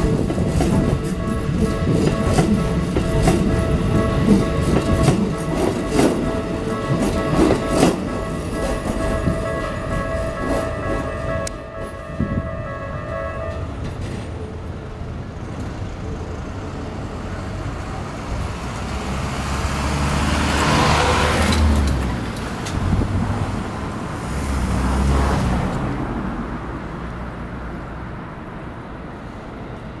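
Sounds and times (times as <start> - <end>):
wheel clacks on rail: 0.0 - 12.3
electric train passing: 0.0 - 30.0.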